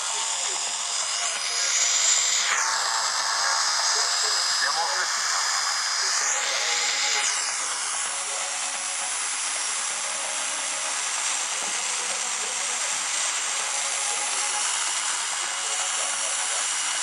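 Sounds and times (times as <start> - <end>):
faint radio voice: 0.0 - 7.8
radio static hiss: 0.0 - 17.0.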